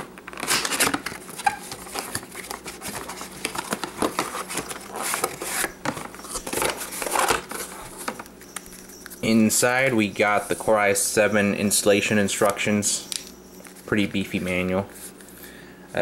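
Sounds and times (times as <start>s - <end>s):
cardboard box rustling and scraping: 1.4s - 8.2s.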